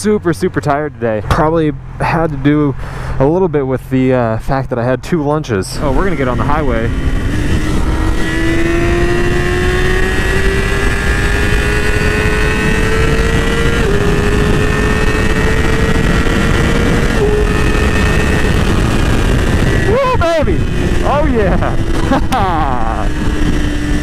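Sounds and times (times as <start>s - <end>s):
wind rushing over microphone: 5.6s - 24.0s
motorcycle engine accelerating: 5.7s - 24.0s.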